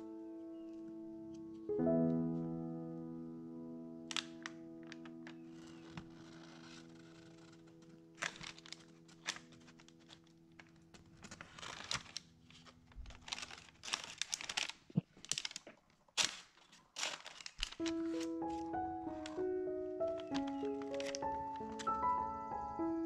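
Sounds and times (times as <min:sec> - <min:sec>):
parchment paper crinkling: 0:04.1 - 0:23.0
held music notes: 0:17.8 - 0:23.0.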